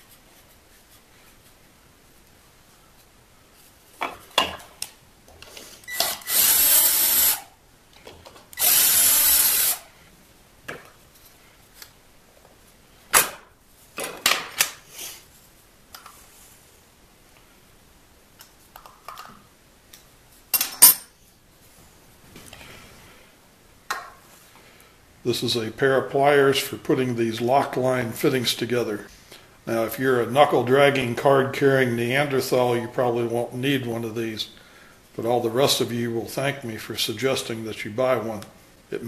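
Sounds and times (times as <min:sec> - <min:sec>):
cordless drill running: 0:05.9 - 0:07.5, 0:08.6 - 0:09.9.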